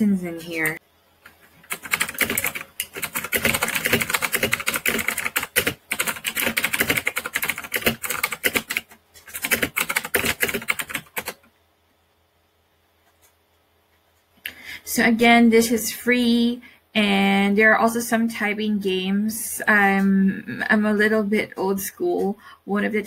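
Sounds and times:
mechanical keyboard typing: 1.6 - 11.5.

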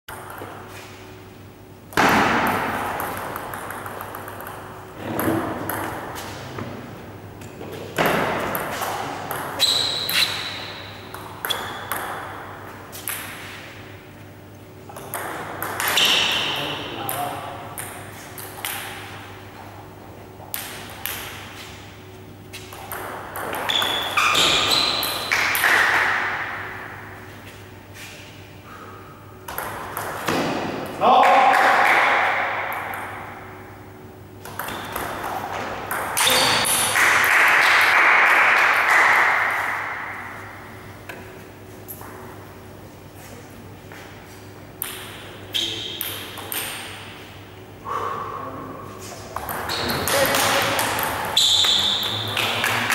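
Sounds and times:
table tennis ball clicking and bouncing: 0.1 - 0.7, 1.9 - 6.7, 7.4 - 13.6, 14.9 - 19.4, 20.5 - 21.5, 22.6 - 27.0, 29.5 - 33.6, 34.4 - 40.2, 44.8 - 47.4, 49.3 - 52.9.

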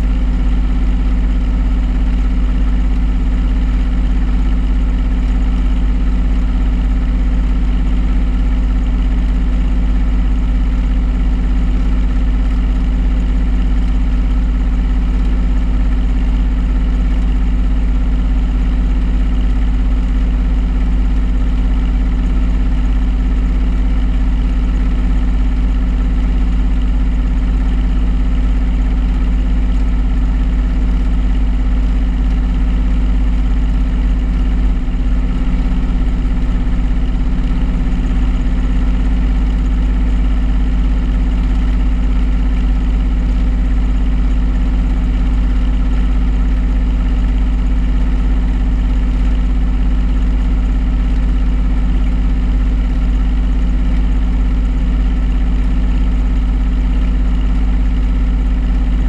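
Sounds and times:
washing machine drum spinning: 24.2 - 59.0.

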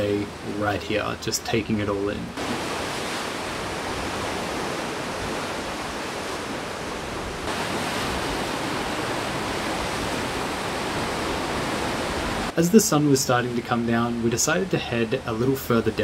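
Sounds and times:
sea waves breaking on rocks: 2.4 - 13.1.

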